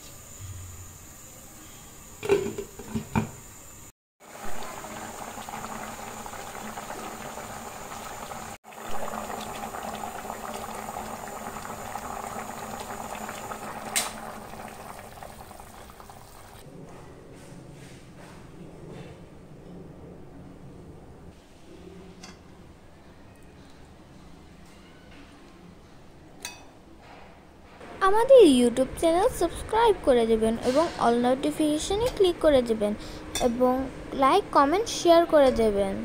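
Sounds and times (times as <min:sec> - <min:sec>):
curry bubbling in a pan: 0:04.3 - 0:16.6.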